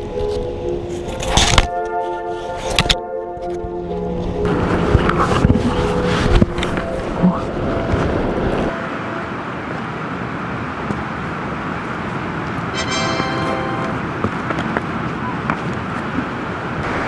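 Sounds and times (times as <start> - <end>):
background music: 12.8 - 14.2
high buzzing tone: 12.8 - 14.2.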